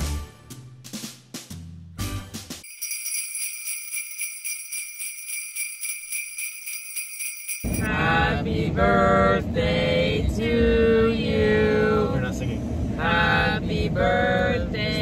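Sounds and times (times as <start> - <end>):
jingle bells shaken: 2.6 - 7.9
people singing: 7.8 - 12.2, 13.0 - 15.0.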